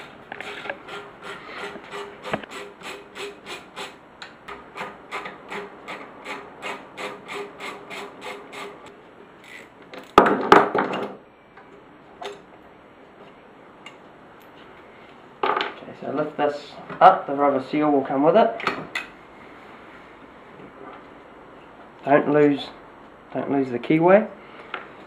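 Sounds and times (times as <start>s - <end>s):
hand ratchet clicking: 0.0s - 10.2s.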